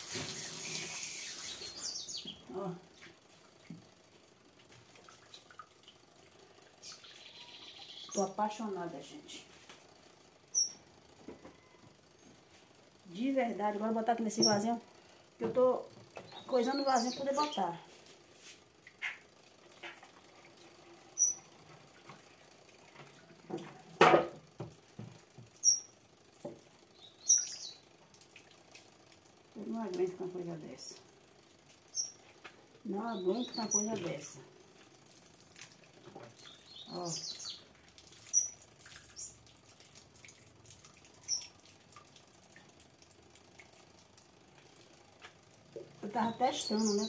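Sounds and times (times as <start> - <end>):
liquid soap trickling: 0.0 - 1.6, 3.3 - 7.1, 34.7 - 46.5
short high bird chirps: 0.4 - 2.3.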